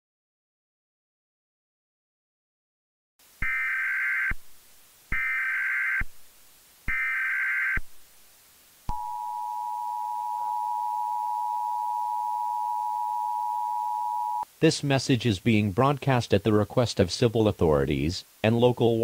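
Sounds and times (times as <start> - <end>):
two-tone attention signal: 8.9 - 14.4
warbling data tones: 8.9 - 14.4.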